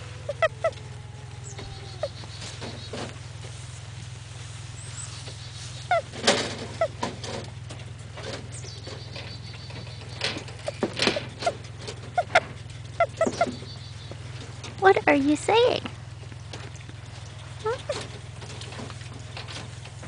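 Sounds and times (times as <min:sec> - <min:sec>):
rabbit squeaking: 0:00.0 - 0:03.6, 0:04.7 - 0:15.8, 0:17.6 - 0:18.9.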